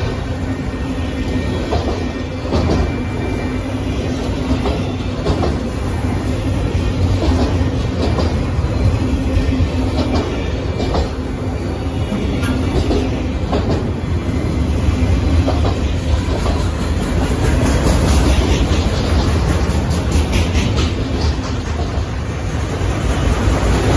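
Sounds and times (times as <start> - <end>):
wheels clattering over rail joints: 15.3 - 22.3.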